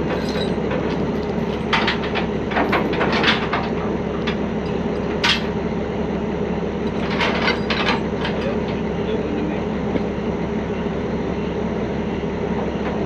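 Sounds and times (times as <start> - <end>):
diesel truck engine idling: 0.0 - 13.0
metal chain clanking: 0.1 - 5.5, 6.9 - 8.8.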